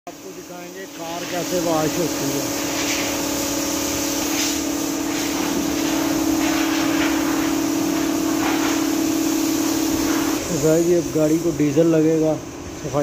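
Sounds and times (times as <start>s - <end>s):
car wash machine hum: 0.1s - 13.0s
constant hiss: 0.1s - 13.0s.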